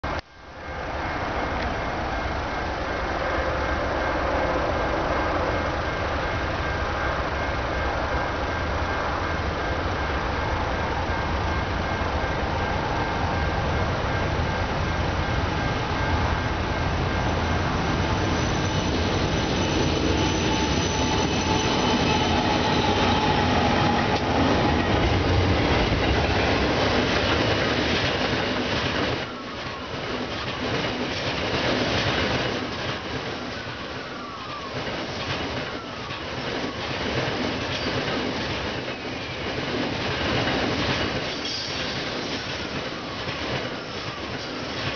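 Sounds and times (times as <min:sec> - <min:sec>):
locomotive engines humming: 0:00.1 - 0:44.9
wheel squeals: 0:17.2 - 0:24.5.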